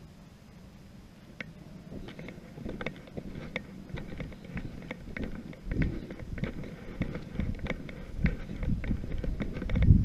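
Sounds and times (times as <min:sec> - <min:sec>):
wind buffeting microphone: 0:01.7 - 0:10.0
footsteps crunching through dry grass: 0:01.8 - 0:10.0.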